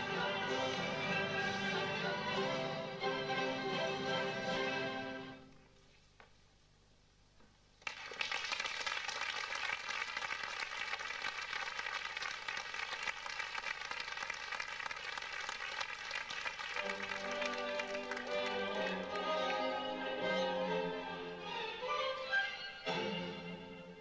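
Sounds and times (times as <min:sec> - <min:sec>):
string music: 0:00.0 - 0:05.4, 0:16.8 - 0:24.0
audience applause: 0:07.8 - 0:19.8.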